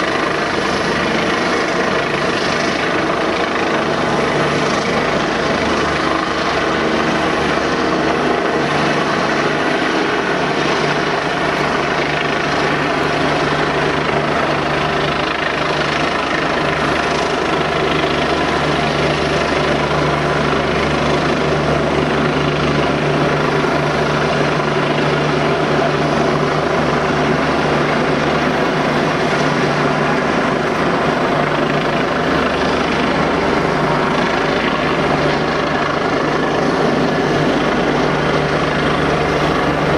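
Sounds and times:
helicopter flying low: 0.0s - 39.9s.

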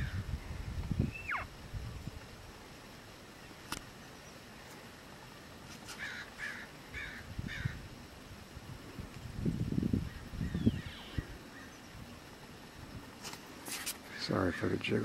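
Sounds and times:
crow cawing: 6.0s - 7.8s.

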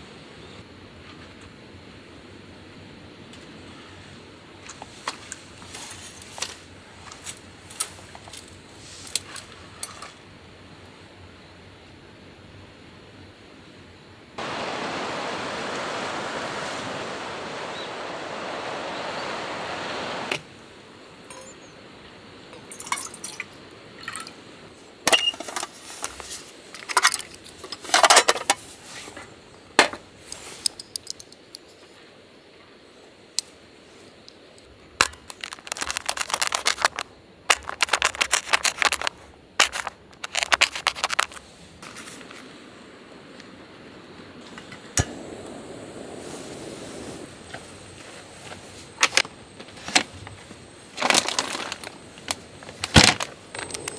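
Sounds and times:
rushing outdoor ambience: 14.4s - 25.0s, 33.0s - 53.9s
camp cooking gear clinking: 21.3s - 21.7s, 22.5s - 24.3s, 35.0s - 42.0s, 48.9s - 53.9s.

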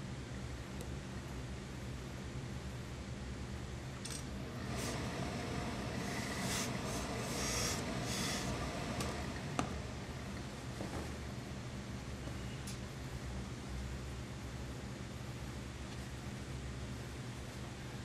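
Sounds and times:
steady low hum: 0.0s - 18.0s
iron rubbing over cloth: 4.4s - 11.2s
steam hisses: 4.6s - 9.6s.

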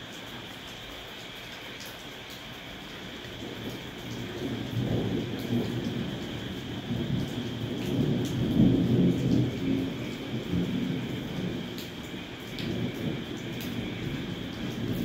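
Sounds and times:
heavy rain falling: 0.0s - 15.0s
low rumble of thunder: 3.1s - 15.0s.

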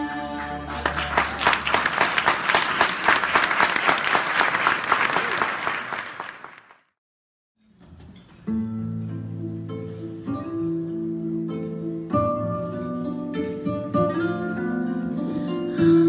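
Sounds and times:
audience clapping: 0.4s - 7.0s.

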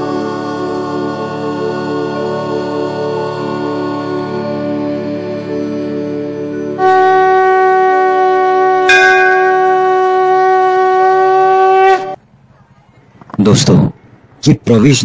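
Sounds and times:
conch shell blown: 6.6s - 12.2s.

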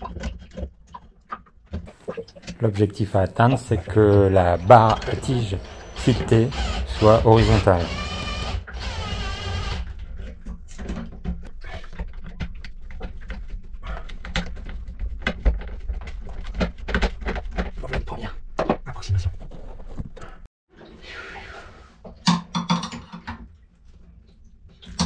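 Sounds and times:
drawn-out pitched tone: 2.1s - 9.2s.

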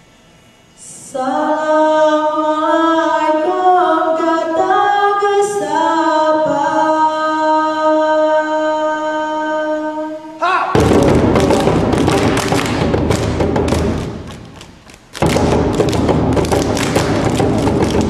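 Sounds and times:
women singing a cappella: 0.8s - 10.4s.

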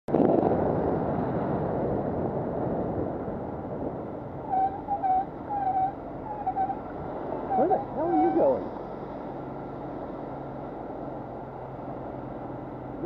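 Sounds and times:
tyres on wet road: 0.1s - 13.0s
short high squeals: 4.4s - 6.8s.

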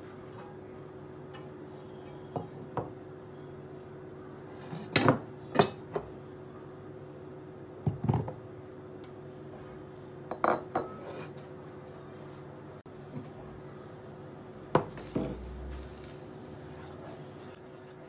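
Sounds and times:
faint steady hum: 11.6s - 18.0s.

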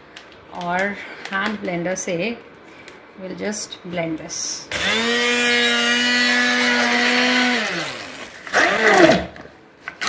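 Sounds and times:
immersion blender motor: 4.7s - 9.4s.

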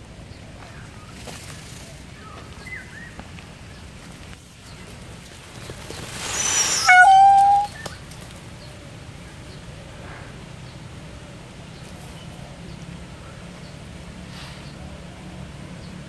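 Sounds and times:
peacock call: 6.2s - 7.9s.

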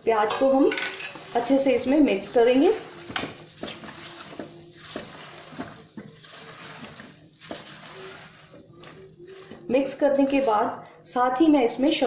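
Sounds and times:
spatula scraping a wok: 0.3s - 10.8s.

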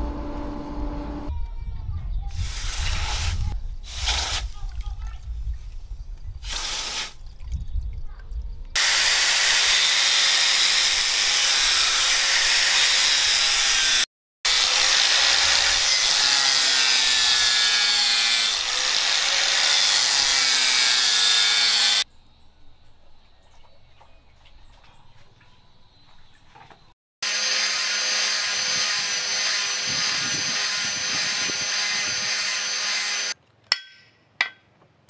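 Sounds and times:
hot blade hissing in water: 6.4s - 7.2s
angle grinder grinding steel: 8.8s - 22.0s, 27.2s - 33.4s.

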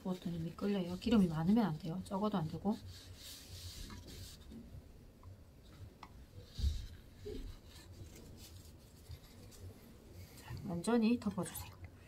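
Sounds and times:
paper towel rubbing frying pan: 0.0s - 4.6s.

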